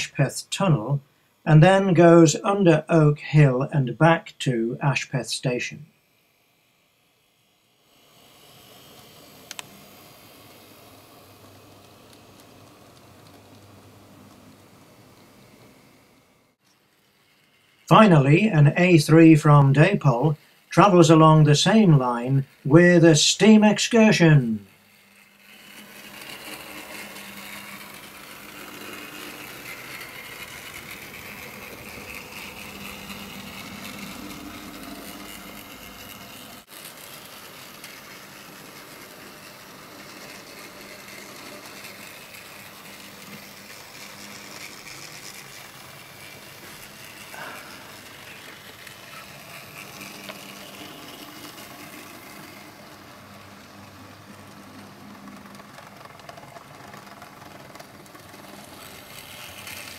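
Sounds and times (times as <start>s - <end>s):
electric motor whirring: 5.9s - 59.9s
wheels rumbling on rail: 24.2s - 59.9s.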